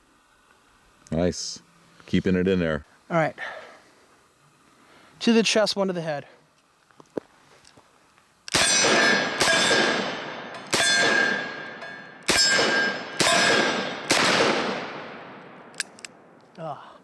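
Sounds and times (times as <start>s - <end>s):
steel target clanging: 8.5s - 14.2s.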